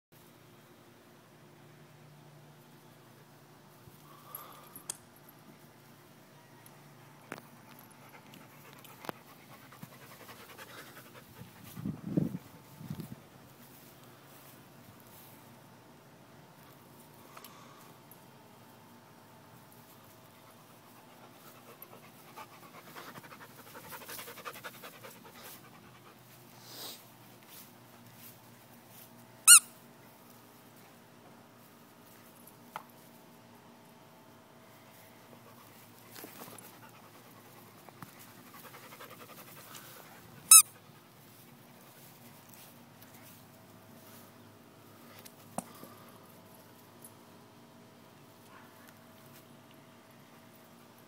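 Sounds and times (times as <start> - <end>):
dog panting rapidly: 8.4 - 12.6, 21.1 - 26.2, 36.5 - 40.4.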